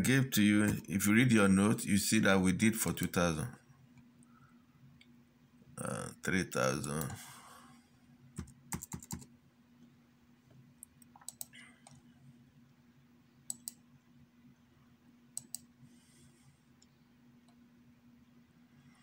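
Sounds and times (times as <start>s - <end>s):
faint steady hum: 0.0s - 19.0s
laptop keystrokes: 8.4s - 9.3s, 11.0s - 12.0s, 13.5s - 13.8s, 15.4s - 15.7s
mouse clicks: 10.8s - 12.0s, 13.5s - 13.8s, 15.4s - 15.7s.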